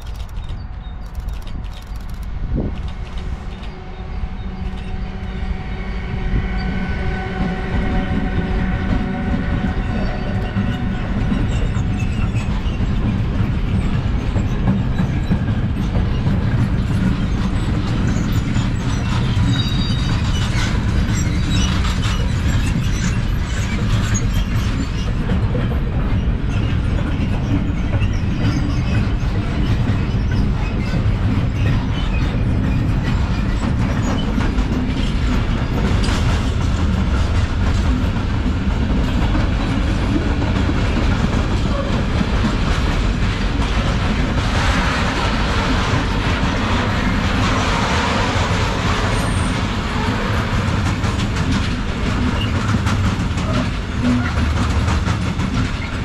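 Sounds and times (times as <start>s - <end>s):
locomotive whining: 0.0s - 15.9s
train wagons rumbling and clattering: 0.0s - 56.0s
train wheel squeal: 0.0s - 56.0s.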